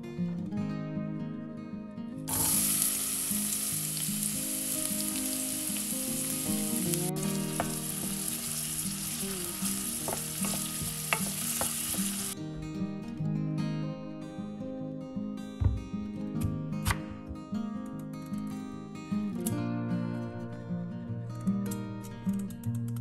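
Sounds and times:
guitar music: 0.0 - 23.0
onion sizzling in hot oil: 2.3 - 12.4
wooden spoon knocking against pot: 10.0 - 12.2.

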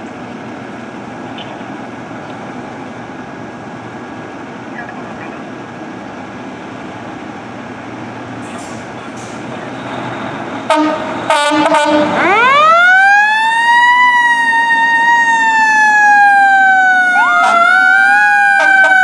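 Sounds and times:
fire truck diesel engine: 0.0 - 19.0
truck horn blasts: 10.7 - 12.3, 17.3 - 17.8, 18.5 - 19.0
second siren: 10.7 - 19.0
siren rising and falling: 12.2 - 19.0.

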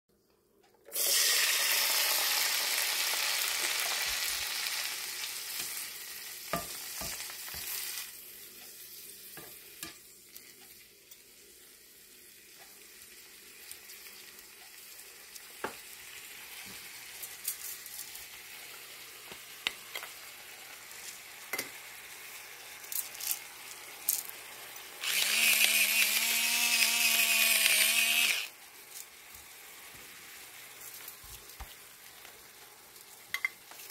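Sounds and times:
lettuce sizzling in a frying pan: 0.9 - 33.9
spatula tapping and scraping a pan: 6.5 - 7.8, 9.3 - 10.1, 21.5 - 21.8, 33.3 - 33.9.

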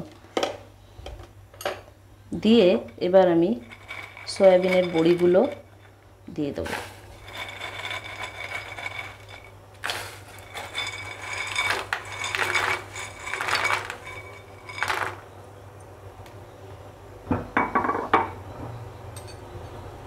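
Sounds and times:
utensils clinking on steel pan: 2.4 - 6.0, 6.6 - 15.2.

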